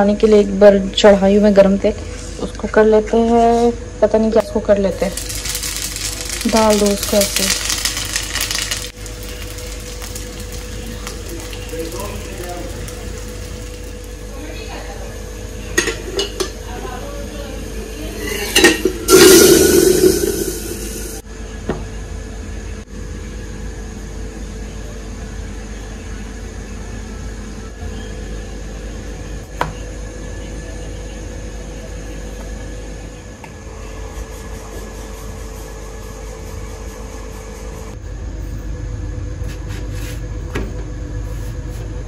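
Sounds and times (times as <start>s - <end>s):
steady hum: 0.0s - 27.8s, 28.6s - 42.0s
hot oil hissing: 4.9s - 15.0s, 18.0s - 21.2s.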